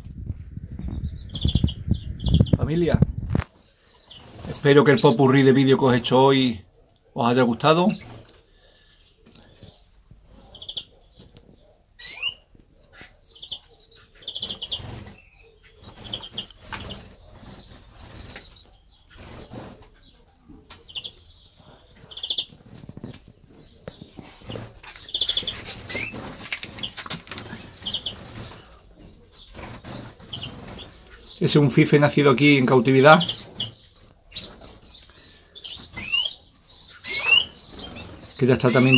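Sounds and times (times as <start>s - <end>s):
canaries chirping: 0.6s - 38.9s
birds fluttering wings: 14.3s - 20.0s, 22.2s - 31.2s.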